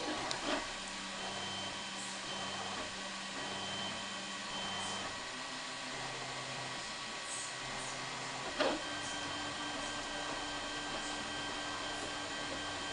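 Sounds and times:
printer fans hissing: 0.0s - 12.9s
stepper motors humming: 0.0s - 12.9s.

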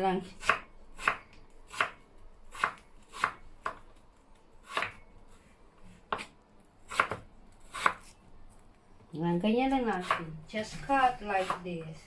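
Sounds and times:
knife slicing potato: 0.3s - 3.9s, 4.6s - 8.2s, 9.7s - 11.8s.

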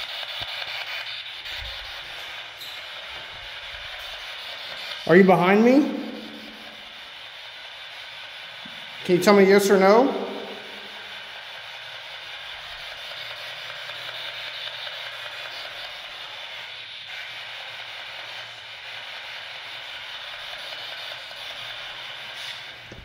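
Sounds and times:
static hiss: 0.0s - 7.2s, 8.0s - 11.8s.

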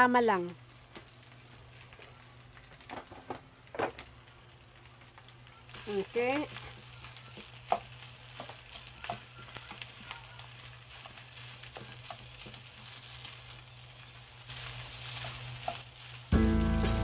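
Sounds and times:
rice sizzling in a frying pan: 0.0s - 17.0s
spatula tapping and scraping pan: 7.4s - 9.9s, 15.0s - 15.9s.

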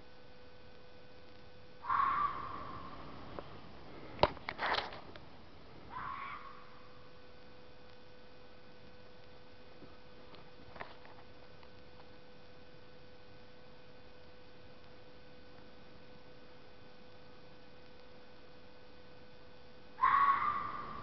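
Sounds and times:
faint steady hiss: 0.0s - 21.0s
thin steady hum: 0.0s - 21.0s
animal screaming: 1.8s - 3.2s, 5.9s - 6.9s, 20.0s - 21.0s.

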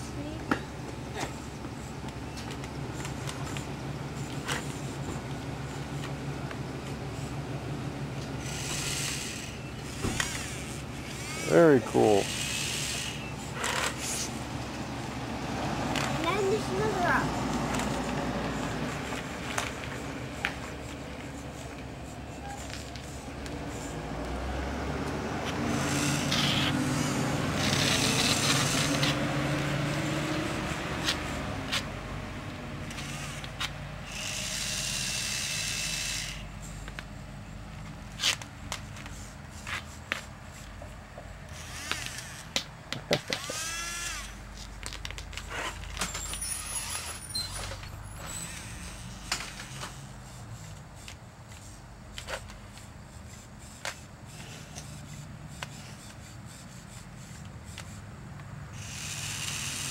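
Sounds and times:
geared motor whining: 0.2s - 37.1s, 37.8s - 59.9s
electric drive motor whirring: 8.2s - 14.4s, 17.7s - 31.4s, 32.8s - 36.6s, 41.5s - 42.6s, 43.3s - 44.4s, 58.7s - 59.9s
claw and rocks clicking on concrete: 41.6s - 43.6s, 44.5s - 46.5s.

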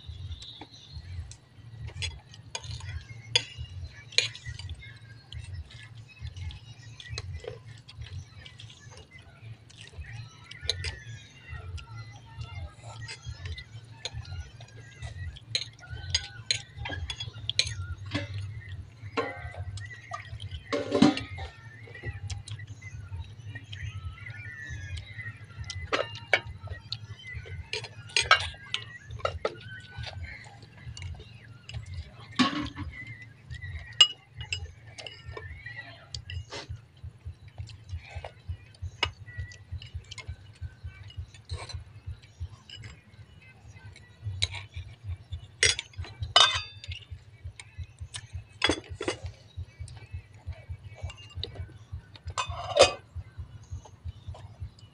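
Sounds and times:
steady low hum: 0.0s - 54.9s
spoons clinking on ceramic bowls: 13.0s - 22.6s, 23.3s - 36.8s, 45.6s - 53.2s.

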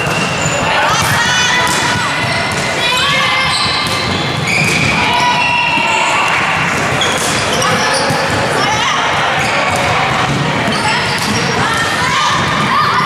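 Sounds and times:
volleyball thuds: 0.9s - 8.5s
shoes squeaking on wooden floor: 2.0s - 8.4s.

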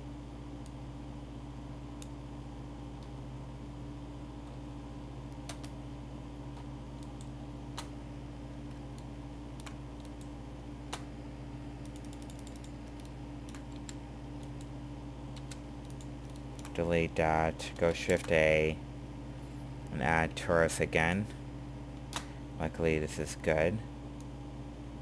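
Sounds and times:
steady low hum: 0.0s - 25.0s
computer mouse clicks: 5.3s - 5.8s, 8.6s - 10.3s, 11.8s - 14.7s, 15.3s - 16.8s
computer keyboard clicks: 5.4s - 5.8s, 11.8s - 14.7s, 15.3s - 16.8s.

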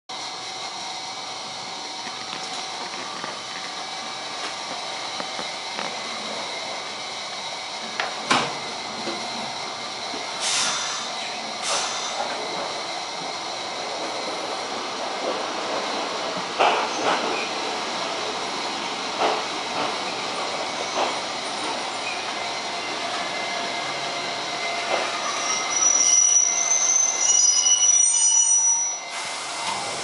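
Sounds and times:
train equipment hum: 0.1s - 28.1s
air hisses: 10.4s - 12.4s.

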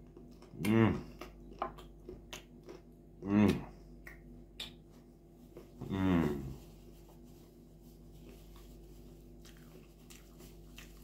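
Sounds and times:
faint chewing and mouth clicks: 0.0s - 5.8s, 8.2s - 11.0s
man humming mmm: 0.5s - 1.2s, 3.2s - 3.8s, 5.8s - 6.6s.

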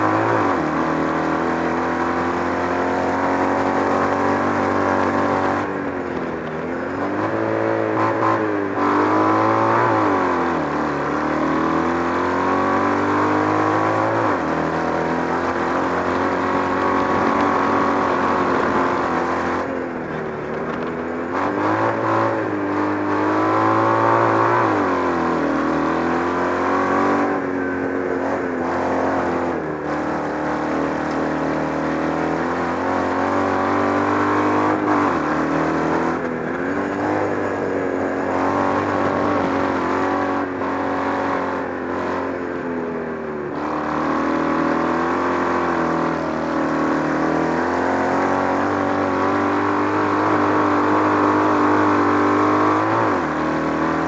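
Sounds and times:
buggy engine revving: 0.0s - 54.0s.

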